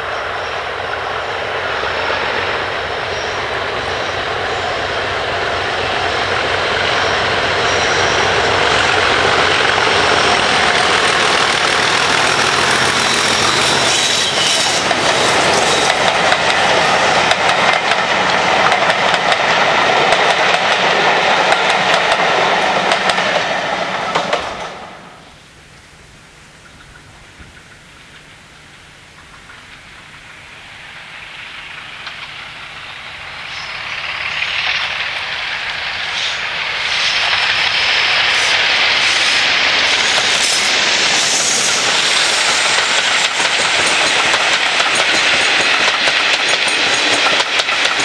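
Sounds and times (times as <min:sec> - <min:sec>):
diesel locomotive engine: 0:00.0 - 0:48.0
train wheels clattering over rail joints: 0:06.2 - 0:24.8, 0:36.0 - 0:48.0.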